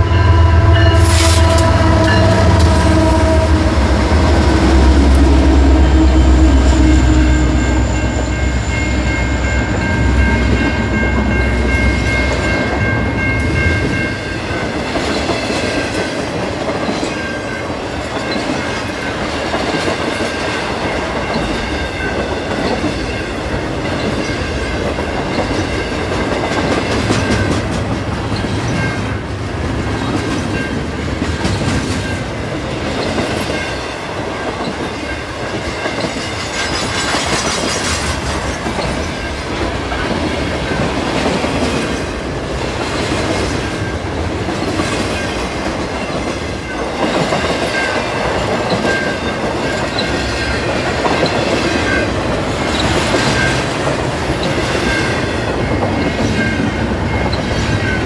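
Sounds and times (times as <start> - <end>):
train wheels clattering over rails: 13.5 - 58.0.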